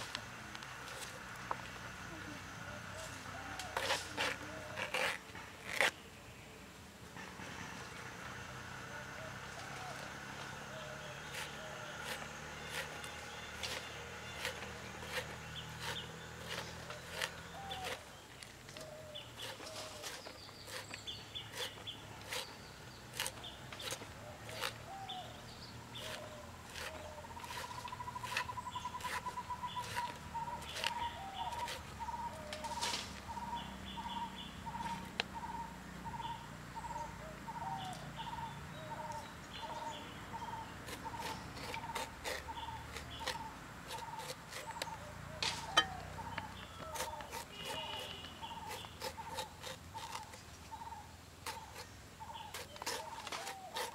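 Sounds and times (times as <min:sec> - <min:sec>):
birds chirping: 0:00.0 - 0:53.9
knife cutting and peeling clicks: 0:26.0 - 0:31.8, 0:40.9 - 0:50.4
bird trill: 0:26.0 - 0:53.9.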